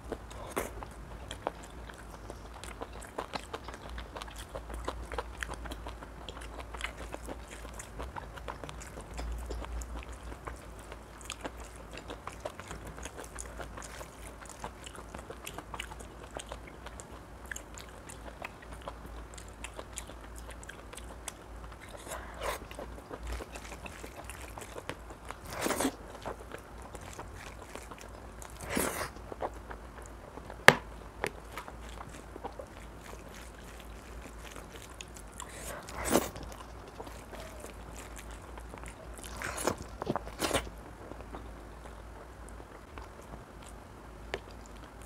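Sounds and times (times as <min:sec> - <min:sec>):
chewing: 0:00.0 - 0:45.0.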